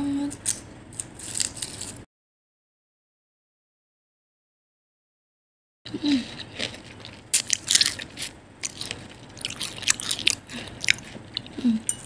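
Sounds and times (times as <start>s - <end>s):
fork crunching fried wrapper: 0.9s - 2.0s, 6.4s - 11.6s.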